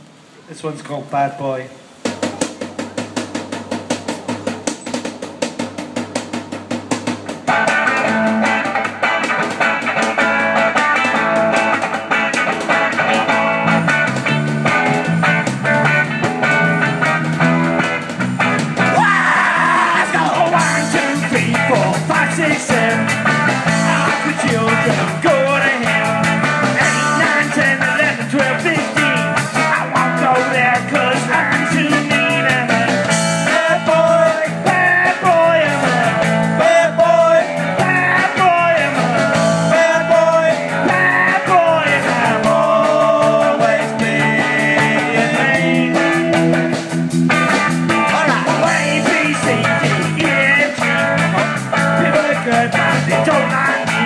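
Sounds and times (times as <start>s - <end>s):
drums: 0.0s - 54.0s
electric guitars: 2.0s - 54.0s
person singing: 18.9s - 46.8s, 48.0s - 54.0s.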